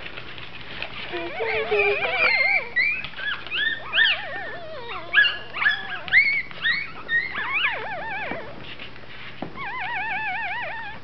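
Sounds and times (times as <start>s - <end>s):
puppies squeaking and whimpering: 0.4s - 11.0s.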